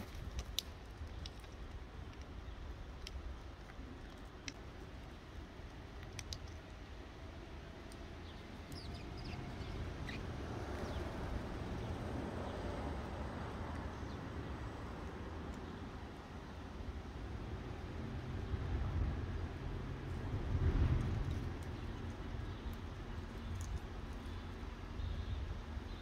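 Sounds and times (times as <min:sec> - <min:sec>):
bird chirps: 0:08.2 - 0:11.1.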